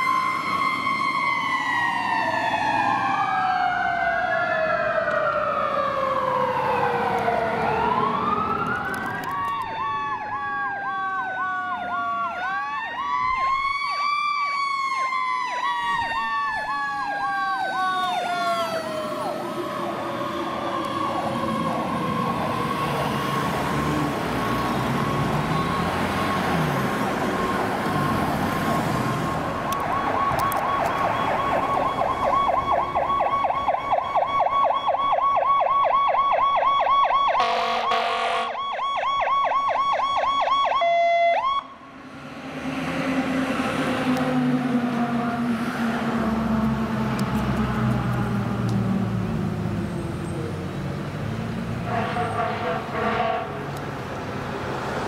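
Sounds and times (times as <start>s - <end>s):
rapid pulsing siren yelp: 0.0s - 28.3s, 29.1s - 42.0s
wailing fire truck sirens: 0.0s - 55.0s.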